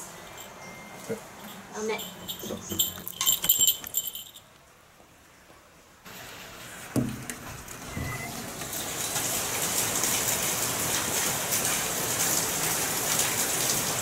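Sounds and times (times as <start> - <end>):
keys jangling: 1.5 - 4.5
rain hissing: 6.0 - 14.0.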